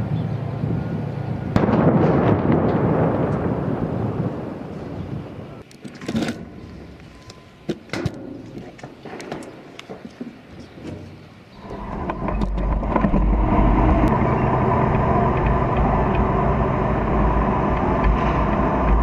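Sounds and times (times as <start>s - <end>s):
tank engine and track rumble: 10.8s - 19.0s.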